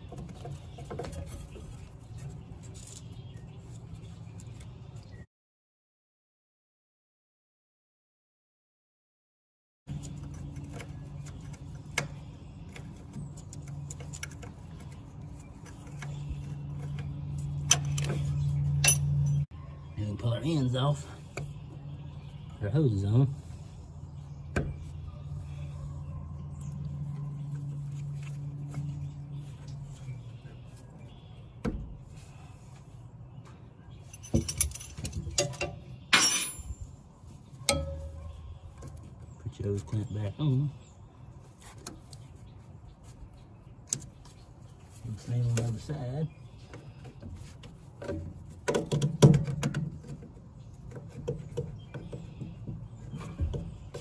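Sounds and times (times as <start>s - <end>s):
metallic clatter with ring: 18.7s - 19.4s, 34.0s - 36.9s, 37.7s - 38.3s.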